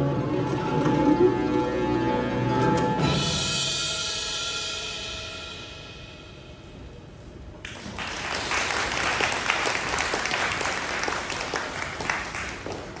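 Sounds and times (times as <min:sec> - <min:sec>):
audience applauding: 0:07.6 - 0:13.0.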